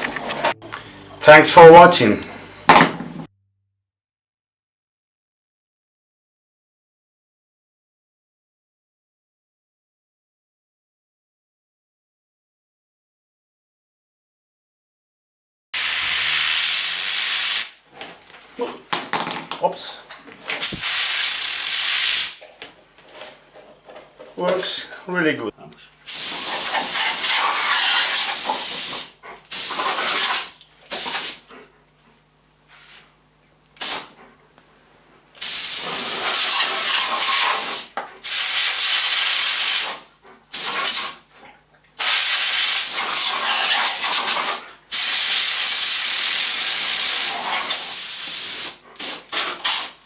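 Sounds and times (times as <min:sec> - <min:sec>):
compressed air blow gun hissing: 0:20.6 - 0:22.4, 0:26.1 - 0:31.4, 0:33.8 - 0:34.2, 0:35.4 - 0:41.2, 0:42.0 - 0:50.0.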